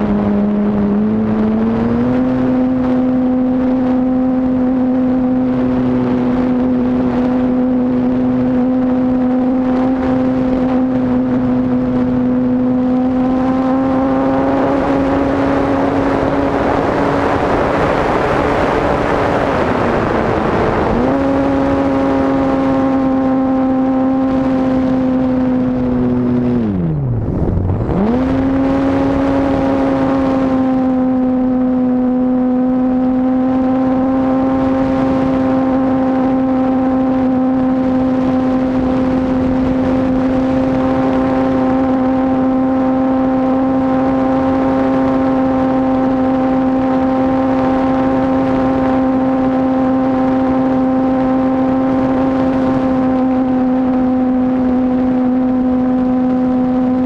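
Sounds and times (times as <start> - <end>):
wind rushing: 0.0 - 31.2.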